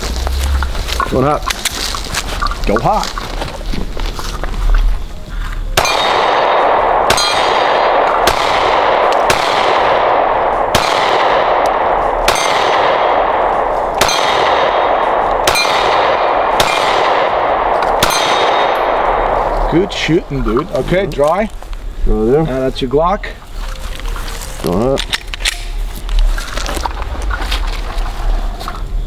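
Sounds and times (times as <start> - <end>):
bullet ringing on steel target: 5.8 - 8.5, 12.3 - 12.8, 14.0 - 16.0, 18.0 - 19.0
pistol shots: 5.8 - 20.4.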